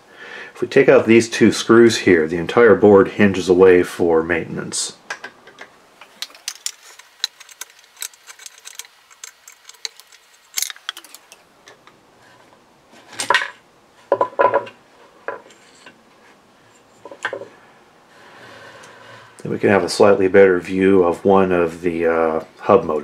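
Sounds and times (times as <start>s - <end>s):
small metal clicks and scrapes: 5.5s - 12.0s.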